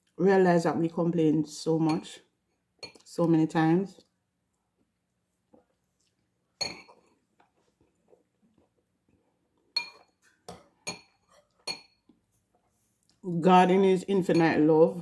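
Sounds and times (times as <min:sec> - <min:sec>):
metal spoon clinking bowl: 0:02.8 - 0:03.1, 0:06.6 - 0:07.1, 0:09.8 - 0:12.1, 0:14.3 - 0:14.7.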